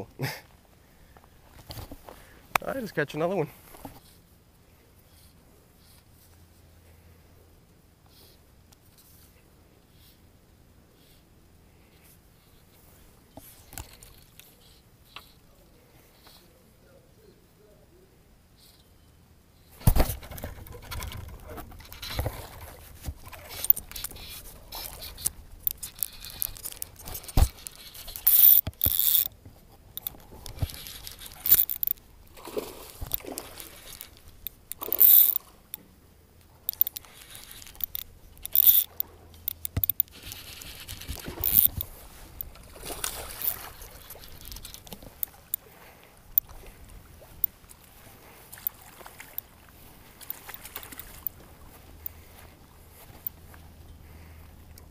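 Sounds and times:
handling noise at microphone: 19.7s - 32.0s, 36.7s - 45.5s
scraping and rustling: 19.8s - 35.4s, 39.9s - 45.2s.

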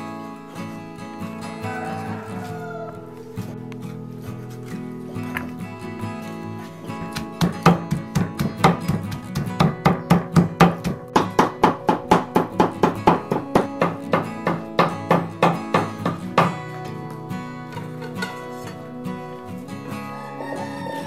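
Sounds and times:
acoustic guitar music: 0.0s - 21.0s
cleaver chopping meat: 7.0s - 16.8s.

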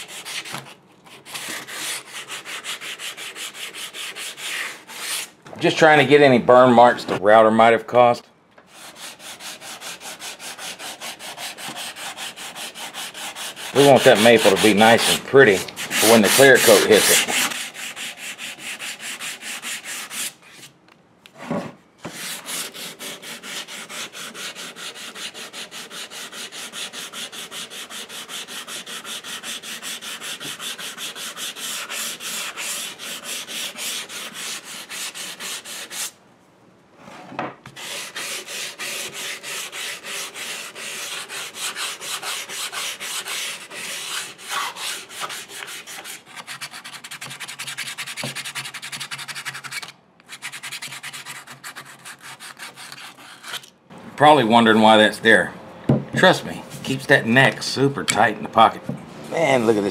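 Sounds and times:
sandpaper rubbing on wood: 0.0s - 0.5s, 1.3s - 5.3s, 8.7s - 20.6s, 22.1s - 36.1s, 37.8s - 53.6s.

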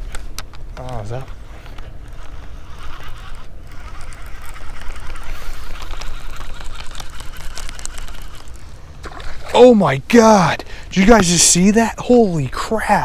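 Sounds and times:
fishing reel winding: 1.6s - 8.6s.

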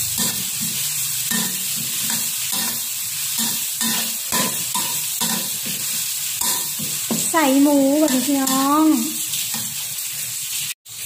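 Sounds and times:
food sizzling in hot oil: 0.0s - 11.0s
spatula scraping and stirring: 0.1s - 7.4s, 8.0s - 10.7s.

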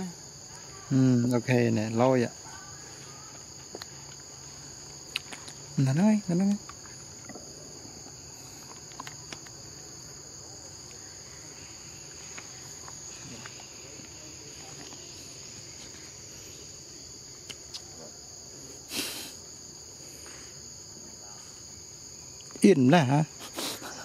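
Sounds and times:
insects shrill chorus: 0.0s - 24.0s.

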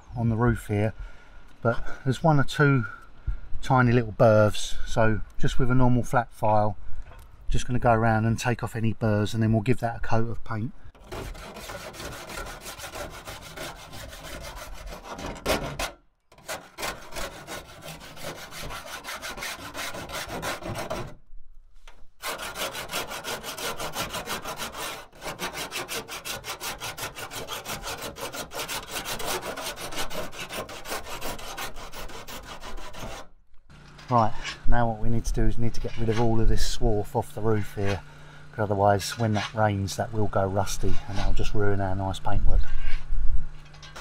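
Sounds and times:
file rasping on steel edge: 11.0s - 21.2s, 22.2s - 33.3s, 35.6s - 36.4s, 40.9s - 41.4s, 43.7s - 44.0s.

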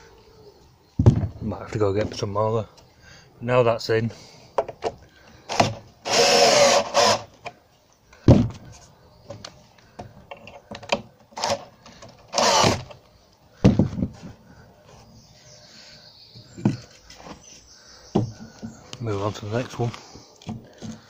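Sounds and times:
knocks from handling timber: 1.0s - 1.4s, 8.3s - 8.7s, 13.6s - 14.3s
drill driving screws into wood: 5.5s - 7.5s, 11.4s - 13.0s.

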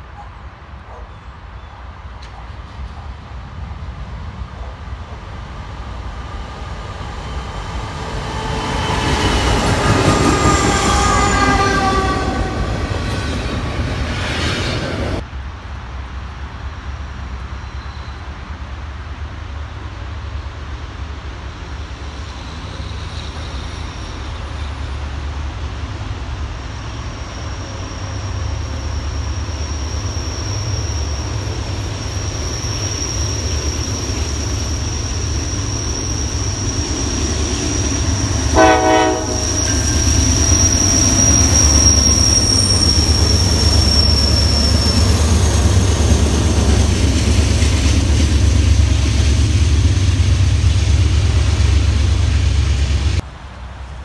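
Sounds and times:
diesel train rumble: 0.0s - 54.0s
diesel locomotive horn: 9.5s - 13.1s, 38.4s - 39.9s.

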